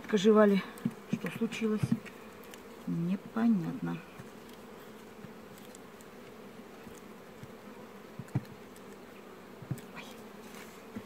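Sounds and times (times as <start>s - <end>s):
hive tool knocking on wood: 0.0s - 11.0s
honeybees humming: 0.0s - 11.0s.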